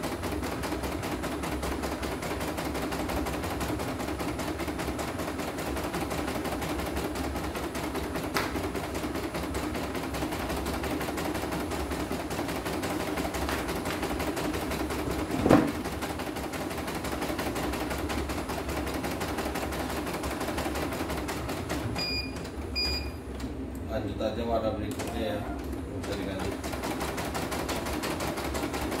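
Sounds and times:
machine knock: 15.3 - 15.8
short machine beeps: 22.0 - 23.2.

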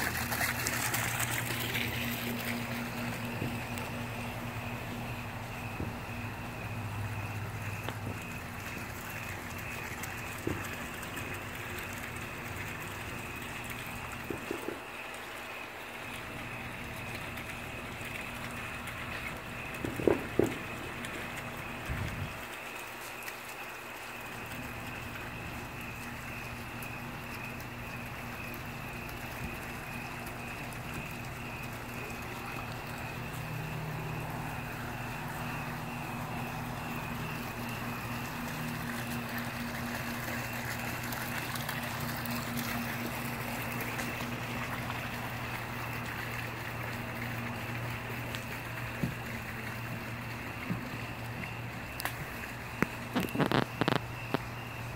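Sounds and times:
water feature trickling: 0.0 - 54.9
wood fire popping: 52.8 - 54.5.

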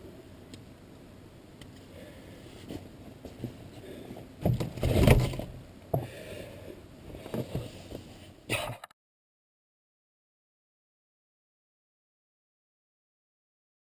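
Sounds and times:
rustling and knocks on canoe hull: 4.4 - 6.1.

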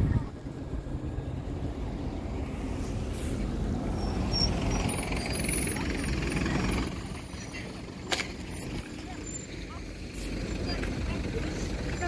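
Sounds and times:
bus engine rumble: 0.0 - 12.0
road noise: 0.0 - 12.0.

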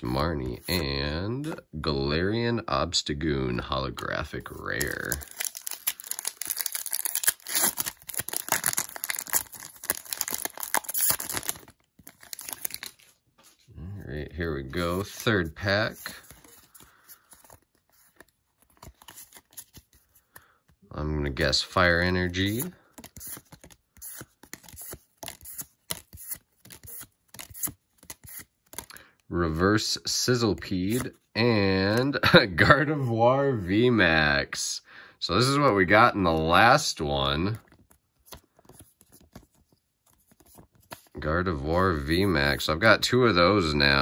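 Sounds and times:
foil wrapper crinkling: 4.6 - 13.2.

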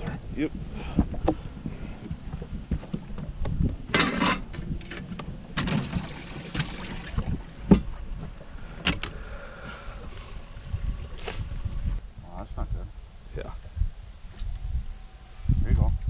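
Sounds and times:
wind buffeting microphone: 0.0 - 16.0
fishing gear rattling in metal boat: 3.7 - 9.2.

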